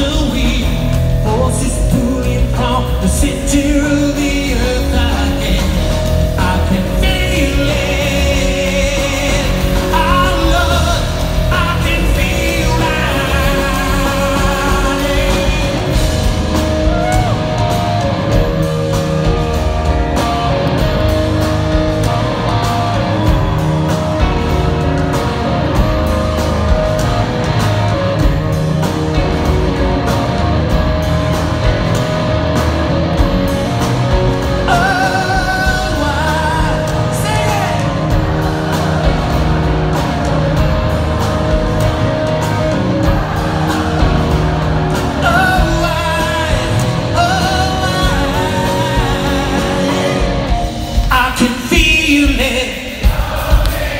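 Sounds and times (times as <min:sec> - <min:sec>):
person singing: 0:00.0 - 0:19.8, 0:34.4 - 0:42.4, 0:43.0 - 0:53.9
rock band playing live: 0:00.0 - 0:53.9.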